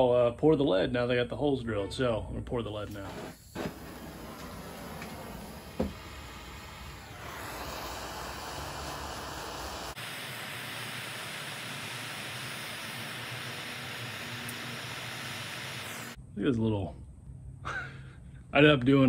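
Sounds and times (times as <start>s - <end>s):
propane torch hissing: 2.8s - 16.2s.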